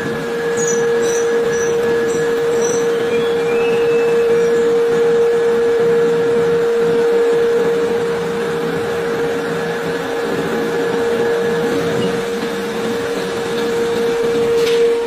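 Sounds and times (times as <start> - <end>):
continuous machine noise: 0.0 - 15.0
steady machine whine: 0.0 - 15.0.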